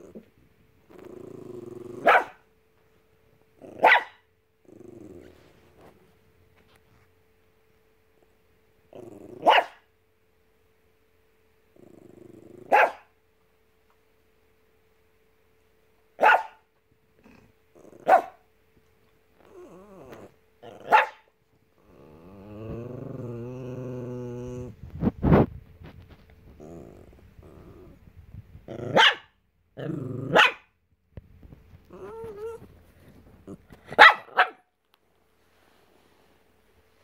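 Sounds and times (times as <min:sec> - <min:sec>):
dog growling: 0:00.9 - 0:02.2, 0:04.6 - 0:05.6, 0:08.9 - 0:09.5, 0:11.7 - 0:12.8, 0:17.2 - 0:18.2, 0:19.4 - 0:20.9, 0:21.8 - 0:24.9, 0:26.4 - 0:28.1, 0:28.7 - 0:29.0, 0:29.8 - 0:30.4, 0:31.9 - 0:32.7
small dog barking: 0:02.0 - 0:02.4, 0:03.6 - 0:04.3, 0:09.4 - 0:09.9, 0:12.7 - 0:13.2, 0:16.2 - 0:16.7, 0:18.0 - 0:18.4, 0:20.6 - 0:21.3, 0:28.8 - 0:29.4, 0:30.2 - 0:30.8, 0:33.9 - 0:34.7.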